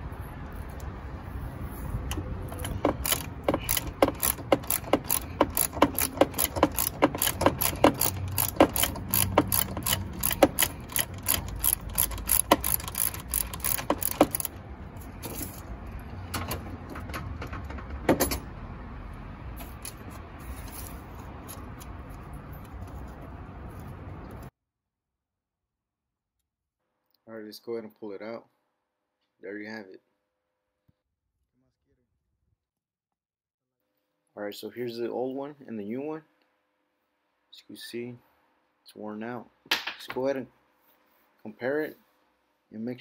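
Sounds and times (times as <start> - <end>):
socket ratchet clicking: 2.1 - 14.6.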